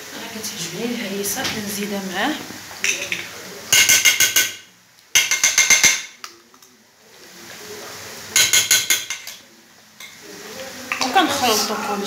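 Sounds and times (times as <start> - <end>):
metal spoon clinking against pan: 2.8 - 4.6, 5.2 - 6.6, 8.4 - 9.4.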